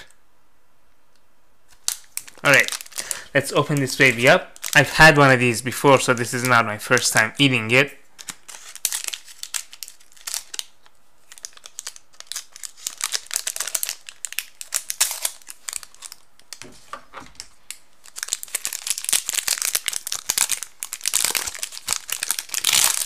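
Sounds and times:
wrapper crinkling: 1.7 - 5.2, 8.2 - 23.0.

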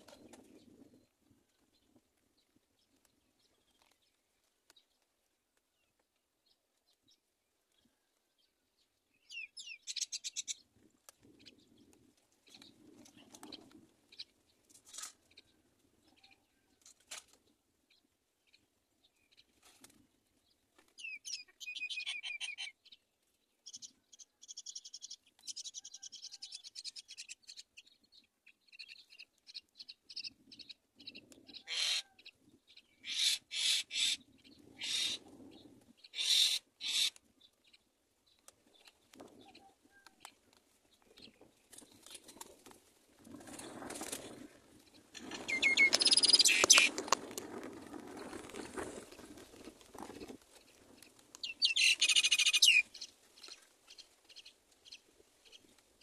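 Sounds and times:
bird chicks calling: 21.0 - 23.0, 28.7 - 37.8, 44.9 - 47.0, 51.4 - 55.7.

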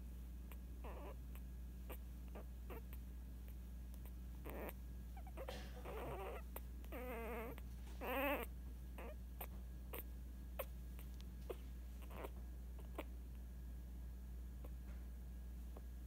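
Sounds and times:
puppy whimpering: 0.5 - 13.1.

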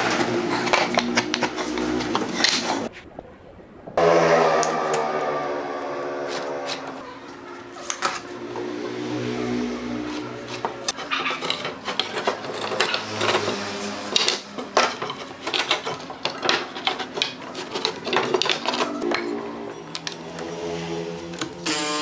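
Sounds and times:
wooden boards knocking together: 10.5 - 19.3.

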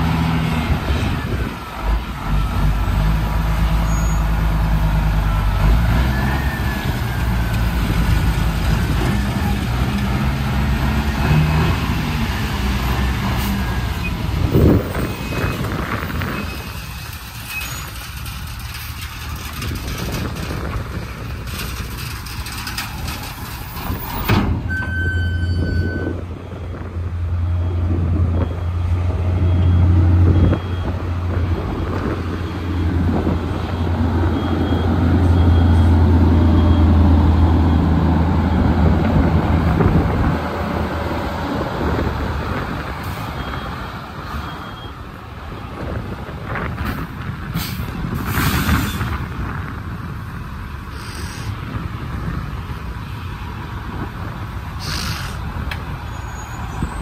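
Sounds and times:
diesel truck engines droning: 0.0 - 57.0
reversing alarm beeping: 24.7 - 26.9, 27.6 - 31.1, 33.7 - 38.8.

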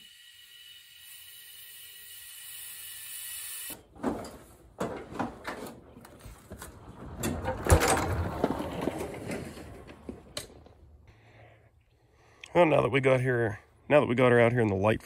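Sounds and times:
lawn tractor wheels bumping: 3.8 - 11.0.

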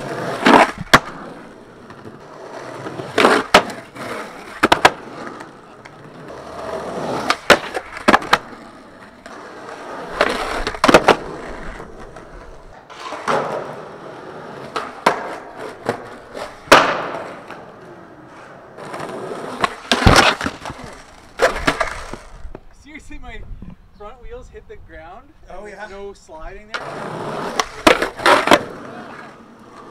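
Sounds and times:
skateboard clattering away: 0.0 - 13.8, 14.5 - 17.7, 18.8 - 22.3, 26.7 - 29.9
skateboard tail popping and landing: 0.0 - 22.7, 26.7 - 29.9
skateboard wheels rolling on concrete: 0.0 - 29.9.

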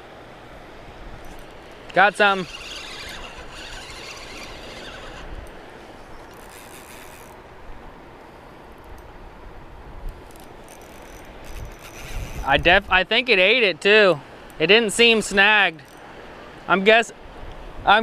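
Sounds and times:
spinning reel gears whirring: 1.2 - 7.4, 10.3 - 12.5
steady wind-like rush: 7.2 - 18.0.

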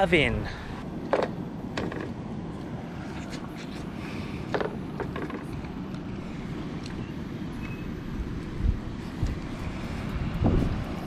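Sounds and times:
wind buffeting microphone: 7.9 - 11.0.

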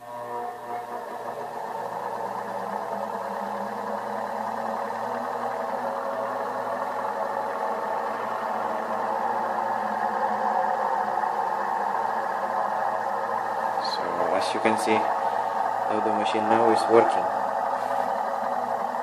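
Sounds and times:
centrifuge motor whirring: 0.0 - 19.0.

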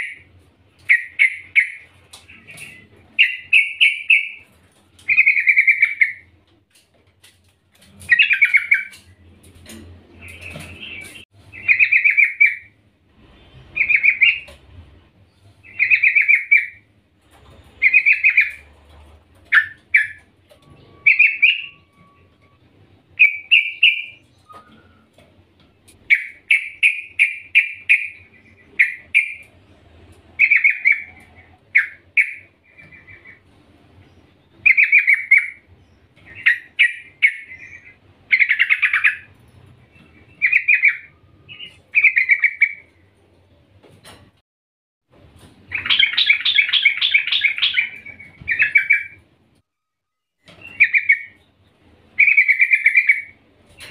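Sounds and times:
bird chattering calls: 17.8 - 18.7, 36.3 - 39.3, 45.7 - 49.2, 52.2 - 53.4.

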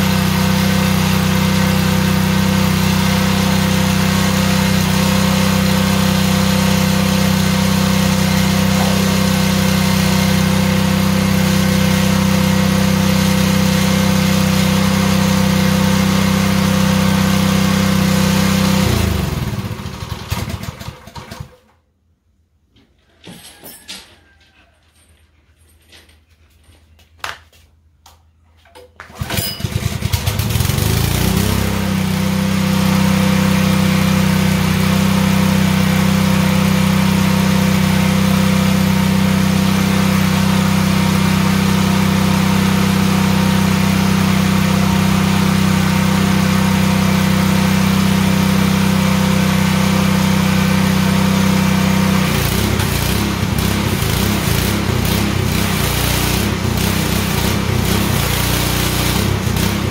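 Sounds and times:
small engine running: 0.0 - 21.6, 29.1 - 59.9
recoil starter tugs: 29.0 - 59.9.

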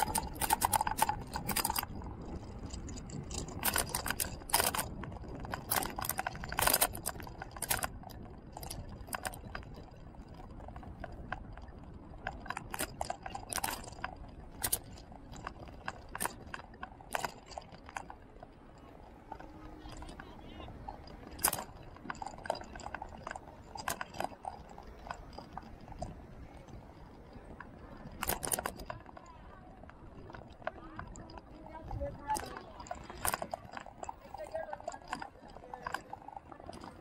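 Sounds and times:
clicking and rattling: 0.0 - 37.0
wind and road noise: 0.0 - 37.0.

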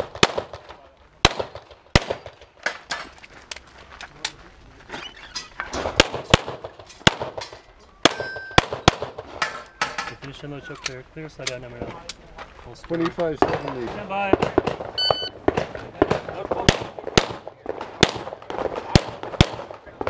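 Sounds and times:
pistol shots: 0.0 - 2.8, 5.8 - 9.4, 13.4 - 19.8.

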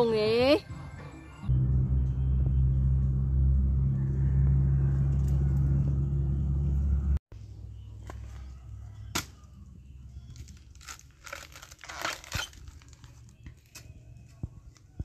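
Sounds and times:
dry leaves crackling and tearing: 10.3 - 13.9.

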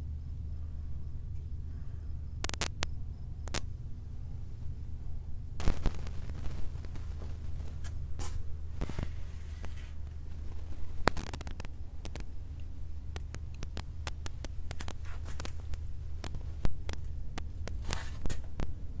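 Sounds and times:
steady low hum: 0.0 - 19.0
sharp clicks and taps: 2.4 - 2.9.

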